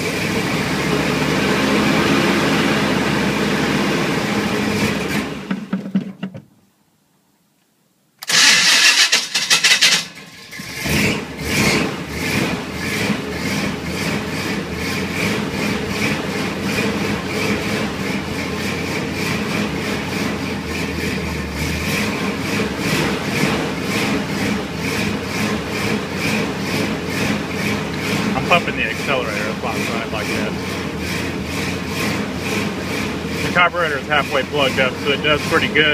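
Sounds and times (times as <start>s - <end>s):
engine cranking and starting: 8.2s - 16.1s
engine running with regular pulse: 8.2s - 35.9s.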